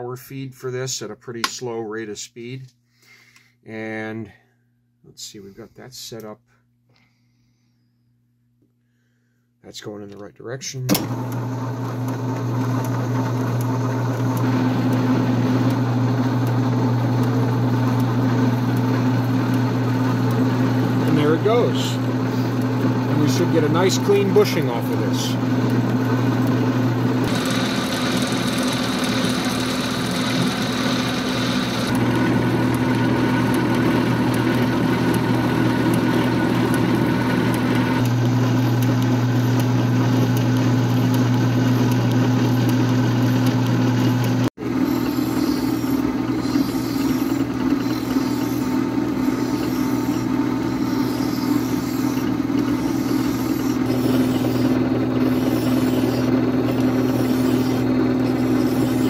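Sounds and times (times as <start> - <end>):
metal lathe humming: 11.0 - 59.0
parting tool cutting brass: 44.8 - 59.0.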